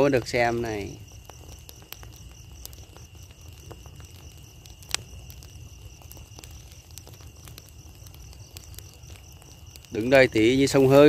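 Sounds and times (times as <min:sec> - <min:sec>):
burning straw crackling and popping: 0:00.0 - 0:11.0
crickets trilling: 0:00.0 - 0:11.0.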